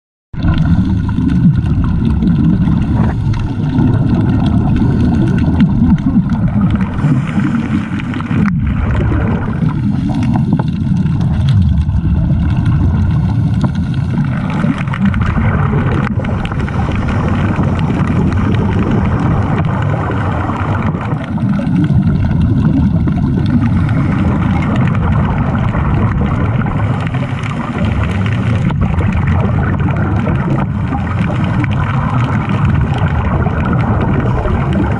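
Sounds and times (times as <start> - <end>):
underwater rumble and bubbling: 0.3 - 34.9.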